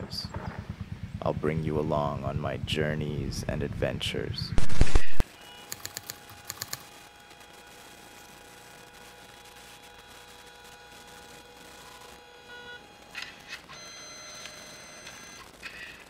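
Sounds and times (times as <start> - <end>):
short clicking bursts: 4.6 - 7.4
high electronic whine: 4.6 - 16.0.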